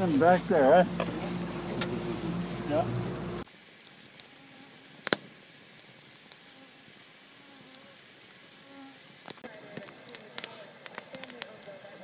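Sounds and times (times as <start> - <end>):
insects buzzing: 0.0 - 9.4
wood fire crackling and popping: 3.3 - 12.0.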